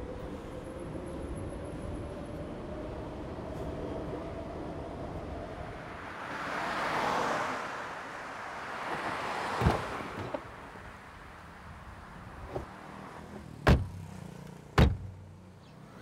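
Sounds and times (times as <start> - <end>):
car passing: 4.8 - 14.7.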